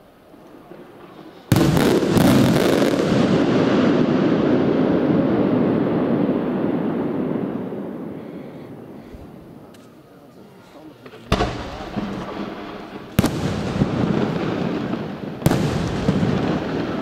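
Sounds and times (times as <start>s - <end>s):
rolling rumble: 11.0s - 17.0s.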